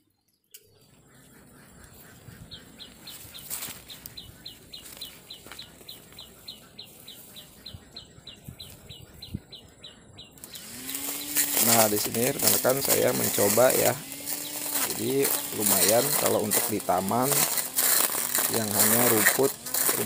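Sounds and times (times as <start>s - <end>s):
bird chirping high and short: 2.0s - 17.4s.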